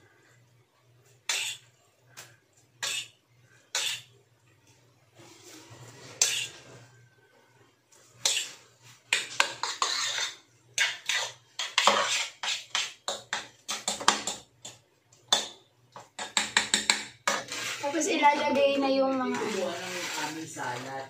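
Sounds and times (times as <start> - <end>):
metal utensil scraping cookware: 1.3 - 1.6, 3.7 - 4.1, 5.9 - 6.8, 8.2 - 13.8, 16.5 - 18.2, 19.2 - 21.0.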